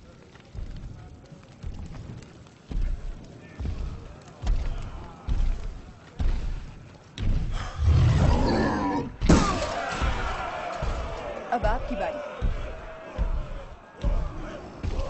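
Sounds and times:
heavy booming footsteps: 0.0 - 15.0
deep growling roar: 7.5 - 9.2.

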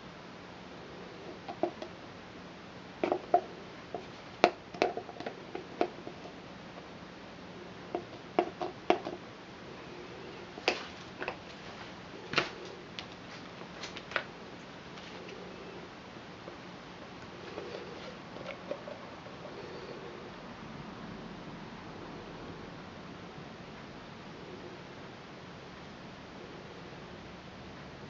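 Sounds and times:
faint steady hiss: 0.0 - 28.0.

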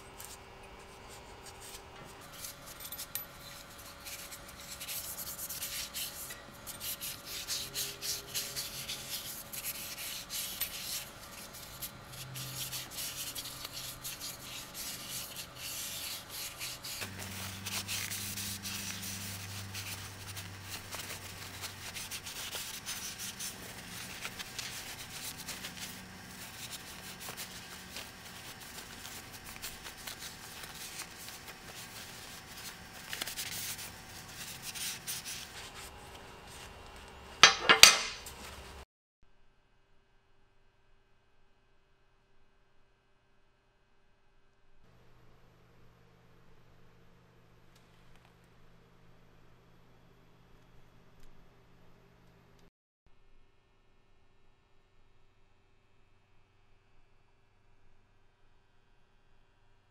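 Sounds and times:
cloth rag rubbing wood: 3.6 - 37.1.

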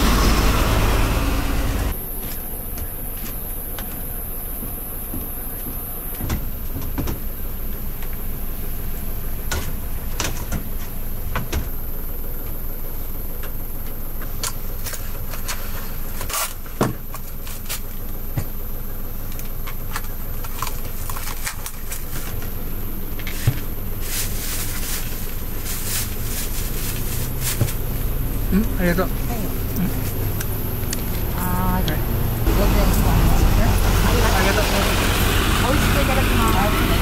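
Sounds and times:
low engine rumble: 0.0 - 37.0
plastic bag rustling: 23.3 - 28.2.

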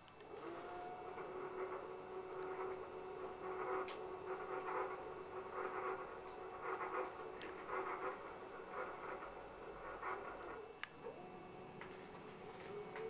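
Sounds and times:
stepper motors whirring: 0.1 - 13.0.

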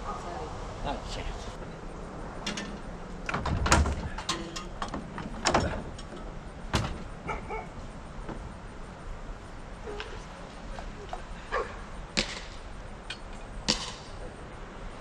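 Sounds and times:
metal parts knocking and banging: 2.4 - 7.2.

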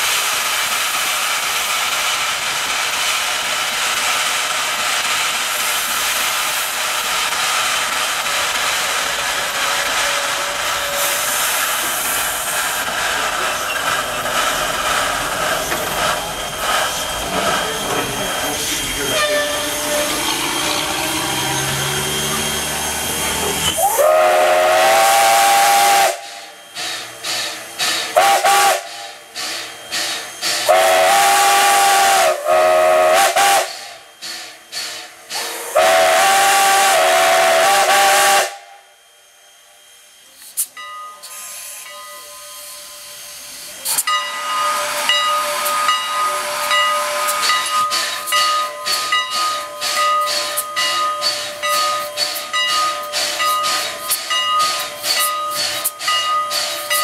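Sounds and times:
steam hissing: 0.0 - 57.0
steam whistle blasts: 19.0 - 29.6, 30.3 - 34.2, 34.8 - 39.1.

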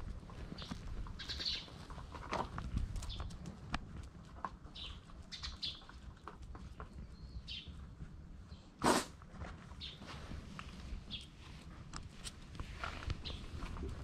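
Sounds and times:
small birds chirping: 0.3 - 2.1, 2.7 - 3.6, 4.5 - 8.8, 9.8 - 10.2, 10.8 - 11.5, 13.0 - 13.8.

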